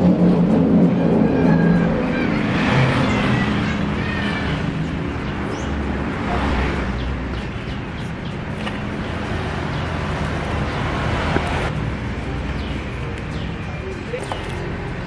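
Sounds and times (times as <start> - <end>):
road traffic rumble: 0.0 - 15.0
bird chirps: 6.9 - 10.0.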